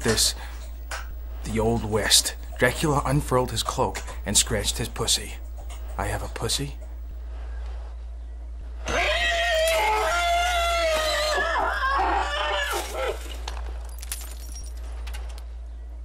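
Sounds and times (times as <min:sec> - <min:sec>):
person screaming: 0:08.9 - 0:13.2.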